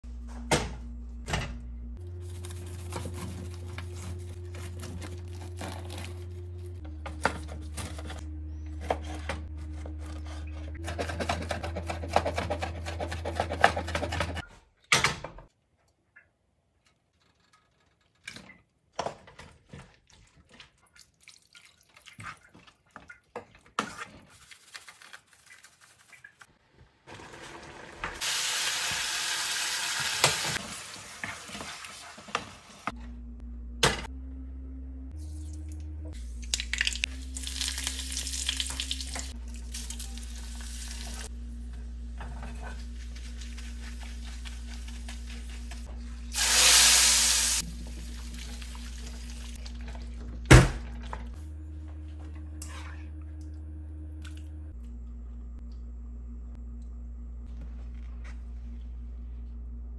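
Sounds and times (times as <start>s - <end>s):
food sizzling in a wok: 27.2s - 32.8s, 46.3s - 49.4s.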